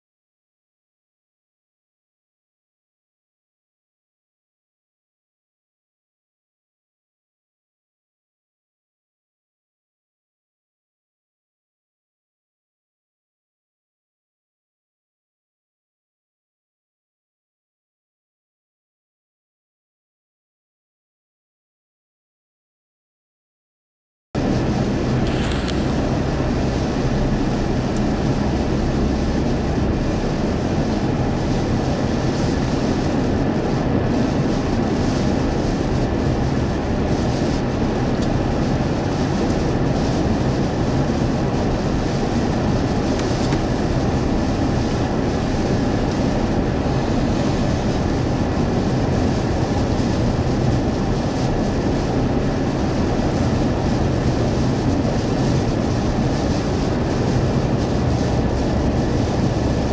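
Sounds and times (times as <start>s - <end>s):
car engine hum: 24.4s - 59.9s
rain and wind against car: 24.4s - 59.9s
tyres on wet pavement: 24.4s - 59.9s.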